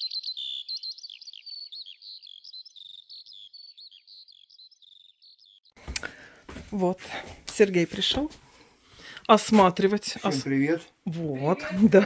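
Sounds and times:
songbirds twittering: 0:00.0 - 0:05.8.

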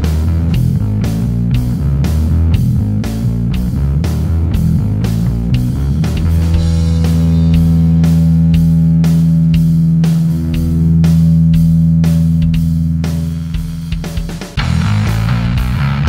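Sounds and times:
fuzzy bass guitar note: 0:00.0 - 0:14.0, 0:14.6 - 0:16.0
steady drum beat: 0:00.0 - 0:16.0.

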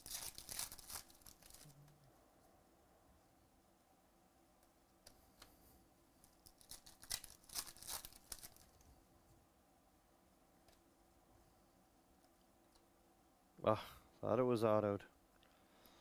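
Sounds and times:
foil wrapper crinkling: 0:00.0 - 0:01.8, 0:06.3 - 0:08.8
sharp crackles of foil: 0:00.0 - 0:02.0, 0:06.2 - 0:08.8.

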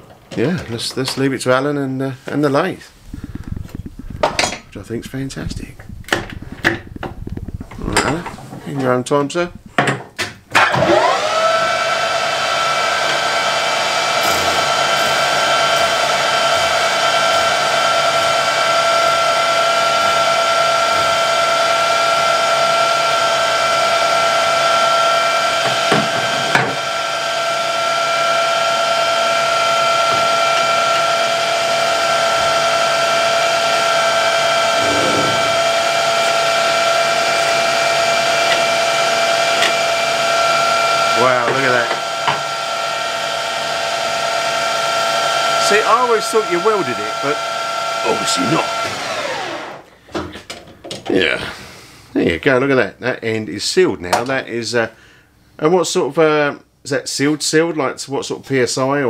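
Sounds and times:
lathe whining: 0:10.6 - 0:49.8.

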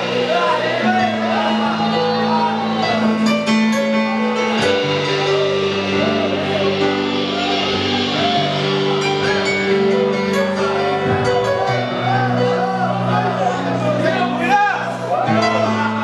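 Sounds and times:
voices singing along: 0:00.0 - 0:03.4
band playing slow chords: 0:00.0 - 0:16.0.

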